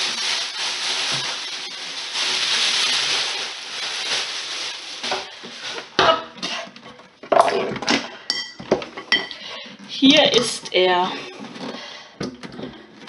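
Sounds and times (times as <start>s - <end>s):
packaging rustling: 0.0s - 6.0s.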